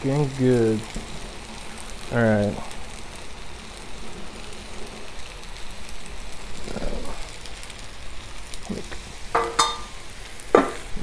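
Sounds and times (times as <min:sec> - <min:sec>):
food sizzling on griddle: 0:00.0 - 0:11.0
metal dome clanking: 0:09.4 - 0:10.0.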